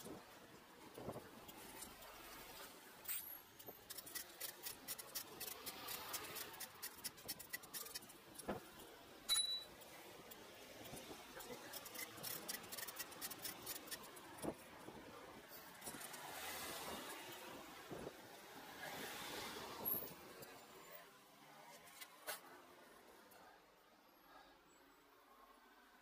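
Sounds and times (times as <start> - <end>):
bicycle clicking and rattling: 3.0 - 14.9, 15.6 - 16.3
high-pitched ping: 9.3 - 9.7.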